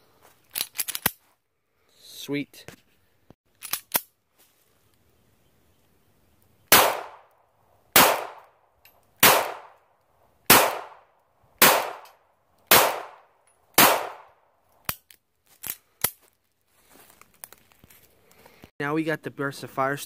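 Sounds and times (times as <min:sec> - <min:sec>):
pistol handling clicks: 0:00.5 - 0:01.2, 0:11.6 - 0:16.2
pistol shots: 0:06.7 - 0:07.3, 0:08.0 - 0:08.5, 0:09.2 - 0:09.8, 0:10.5 - 0:11.0, 0:11.6 - 0:12.1, 0:12.7 - 0:14.3.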